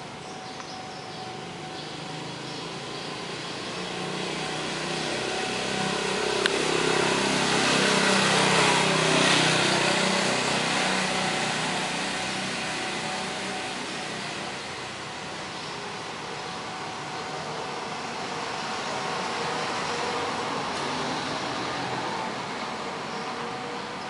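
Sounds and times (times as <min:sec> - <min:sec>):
car passing by: 0:03.2 - 0:15.1.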